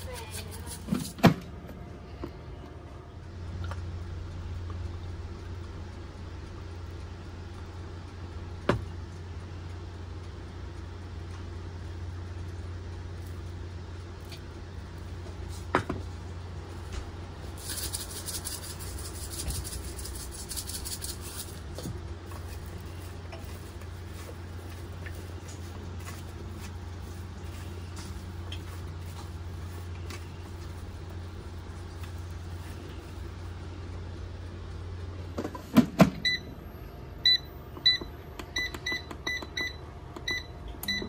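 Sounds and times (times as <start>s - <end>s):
low hum: 0.0s - 35.4s
pepper grinder gritty crackle: 17.4s - 33.2s.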